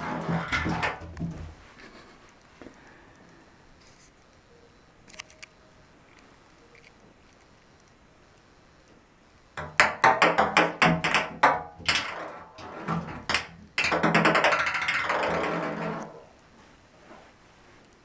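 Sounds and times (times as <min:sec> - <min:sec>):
ping-pong ball knocking in bathtub: 0:00.0 - 0:01.6, 0:09.6 - 0:16.2
ball rolling and rattling in tub: 0:00.0 - 0:01.7, 0:09.6 - 0:16.4.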